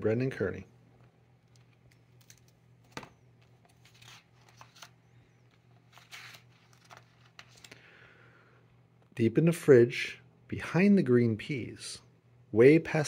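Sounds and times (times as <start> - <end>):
steady low hum: 0.0 - 13.0
book pages turning: 1.4 - 7.7.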